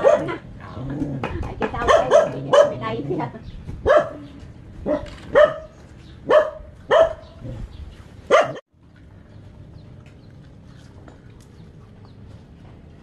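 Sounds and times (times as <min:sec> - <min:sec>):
dog barking: 0:00.0 - 0:00.4, 0:01.8 - 0:02.9, 0:03.8 - 0:07.4, 0:08.3 - 0:08.6.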